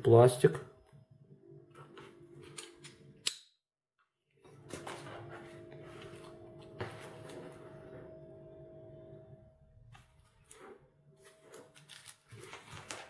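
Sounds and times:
low room hum: 4.4s - 13.0s
strap handling rustles: 11.3s - 13.0s.

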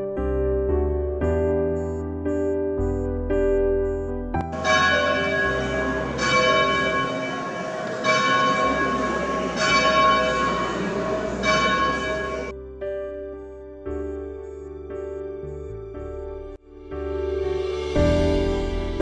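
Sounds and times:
soft piano music: 0.0s - 19.0s
church bell tolling: 4.5s - 12.6s.

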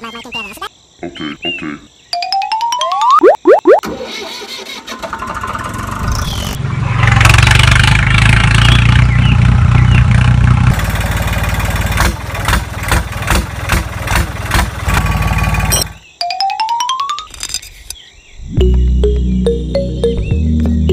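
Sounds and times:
diesel tractor engine: 3.8s - 16.0s.

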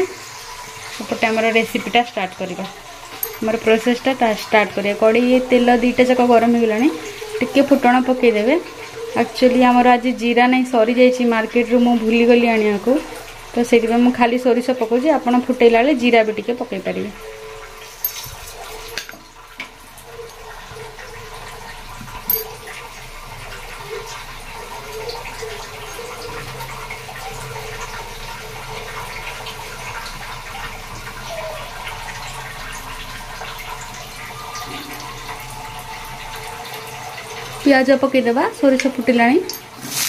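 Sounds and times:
seeds crackling in hot oil: 37.6s - 40.0s.

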